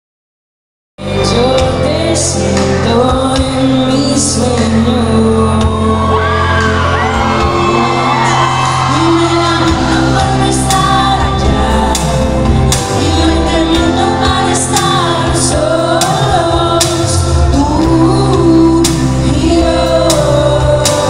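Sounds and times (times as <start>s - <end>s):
heavy bass: 1.0s - 21.0s
live pop band playing: 1.0s - 21.0s
person singing: 1.0s - 21.0s
crowd whooping: 5.8s - 11.0s.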